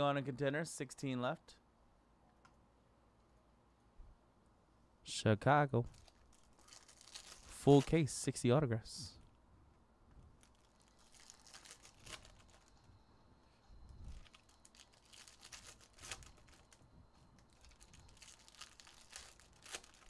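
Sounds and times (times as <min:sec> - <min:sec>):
foil wrapper crackles: 0:05.9 - 0:08.0, 0:10.4 - 0:12.9, 0:13.9 - 0:20.0
foil wrapper crinkling: 0:05.9 - 0:08.0, 0:10.4 - 0:13.0, 0:13.8 - 0:20.0.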